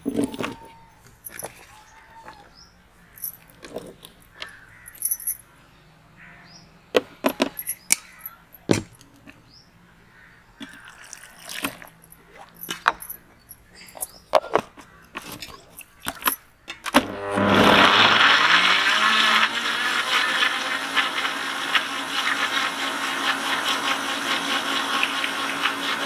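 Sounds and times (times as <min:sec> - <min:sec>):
birds chirping: 0:00.0 - 0:16.8.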